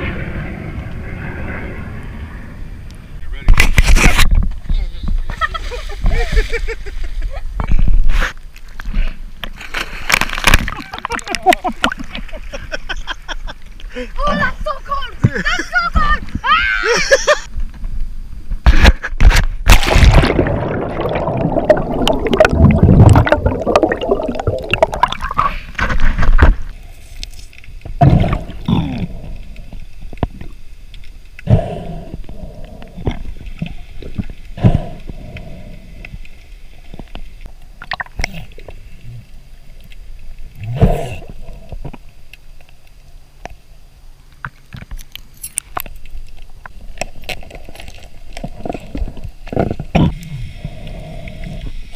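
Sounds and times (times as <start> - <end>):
splashing and bubbles: 9.6 - 12.2, 19.6 - 26.7, 32.3 - 39.2
bubbly gurgles: 19.7 - 25.7.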